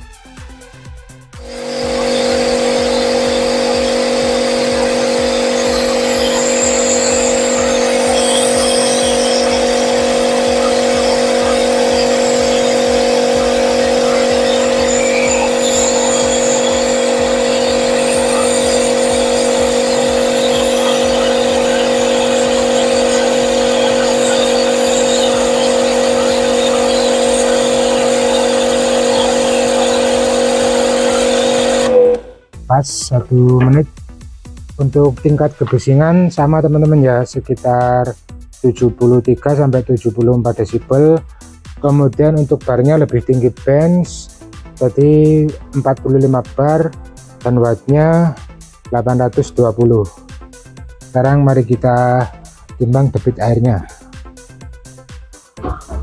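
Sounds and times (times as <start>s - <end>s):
pressure washer motor hum: 1.3s - 32.5s
water jet hissing: 1.4s - 32.3s.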